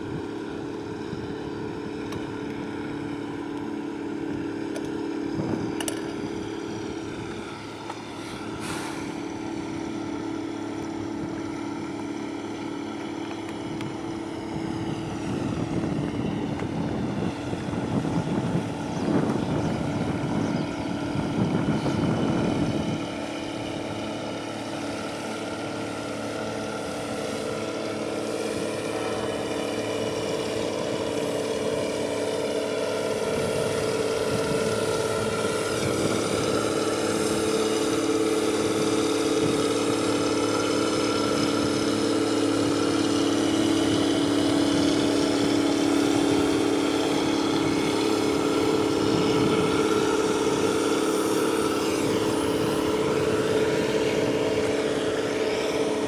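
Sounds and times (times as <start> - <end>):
ship engine drone: 0.0 - 56.0.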